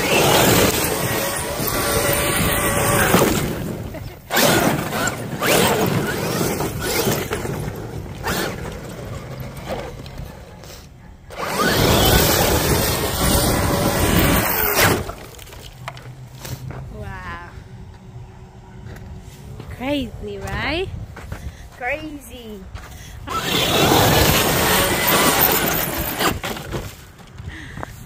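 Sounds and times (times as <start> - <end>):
rc truck drivetrain whirring: 0.0 - 16.7, 23.1 - 27.2.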